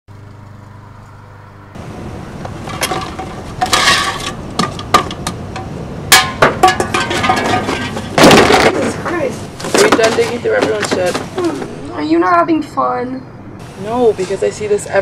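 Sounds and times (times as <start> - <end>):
low hum: 0.1 - 15.0
outdoor background noise: 0.1 - 15.0
plastic and glass items clattering: 2.6 - 5.2, 6.5 - 11.7.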